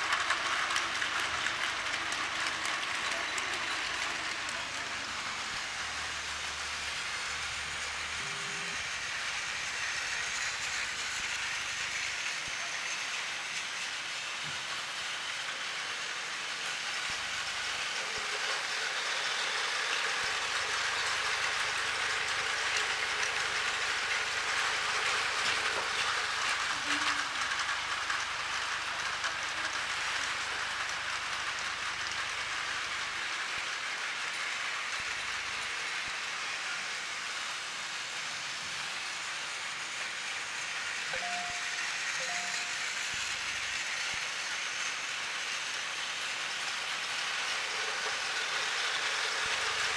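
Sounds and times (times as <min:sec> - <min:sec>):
toy train clattering whir: 0:00.0 - 0:49.9.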